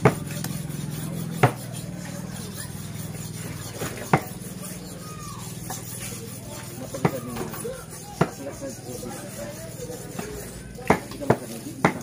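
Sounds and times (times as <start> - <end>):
knives chopping meat on wood: 0.0 - 2.0, 3.7 - 4.4, 6.8 - 8.6, 10.2 - 12.0.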